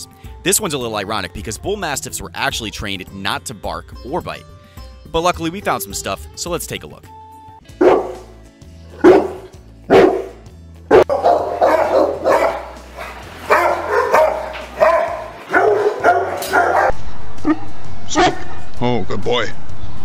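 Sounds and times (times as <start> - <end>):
dog barking: 7.8 - 8.3, 8.9 - 17.6.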